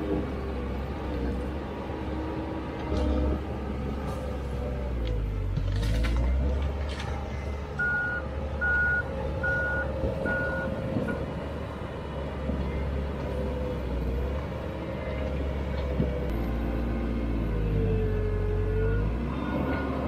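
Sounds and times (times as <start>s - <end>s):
diesel engine running: 0.0s - 20.0s
reverse alarm beeping: 7.8s - 10.7s.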